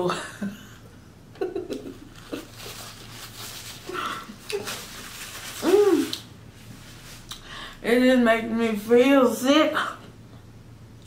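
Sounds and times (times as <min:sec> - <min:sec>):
paper napkin rustling: 0:02.0 - 0:07.3.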